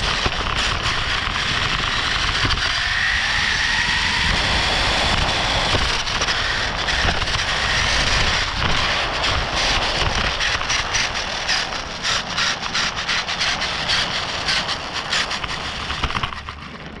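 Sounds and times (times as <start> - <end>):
toy car wheels rumbling: 0.0 - 17.0
rattles over rough surface: 4.4 - 17.0.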